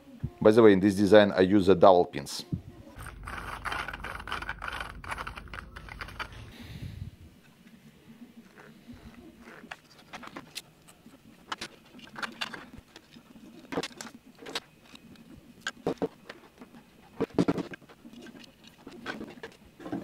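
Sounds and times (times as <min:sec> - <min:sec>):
cables shifting: 0:02.9 - 0:06.6, 0:08.4 - 0:20.0
plastic parts clicking: 0:03.0 - 0:06.5, 0:09.4 - 0:16.4.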